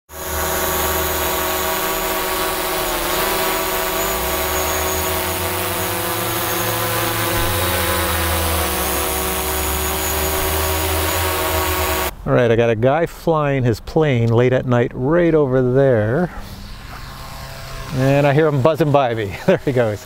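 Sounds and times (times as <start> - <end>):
drone buzzing whine: 0.0 - 12.2, 16.2 - 20.0.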